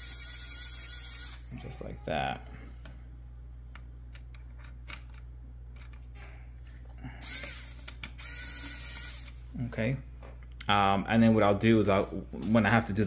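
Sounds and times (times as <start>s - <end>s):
electric screwdriver whirring: 0.0s - 1.5s, 7.2s - 9.4s.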